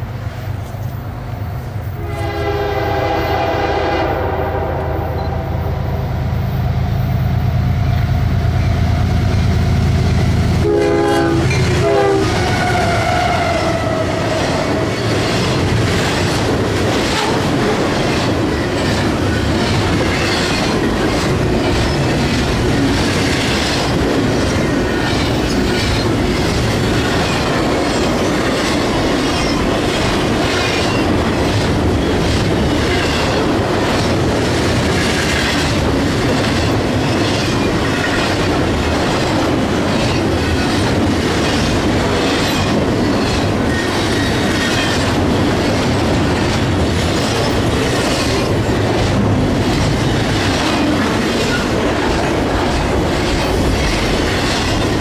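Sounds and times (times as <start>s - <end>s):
train wheels rumbling on rails: 0.0s - 55.0s
wheels clickety-clack: 11.5s - 55.0s.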